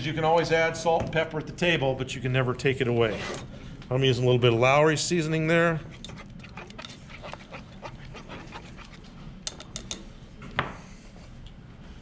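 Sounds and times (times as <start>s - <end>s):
whisk swishing in sauce: 5.8s - 9.2s.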